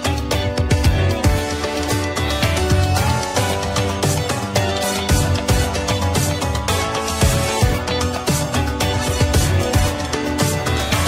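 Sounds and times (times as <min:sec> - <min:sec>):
background music with steady beat: 0:00.0 - 0:11.0.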